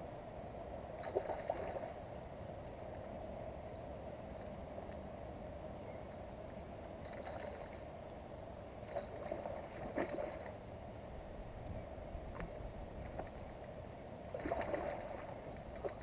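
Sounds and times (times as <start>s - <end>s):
fish splashing: 14.3s - 15.3s.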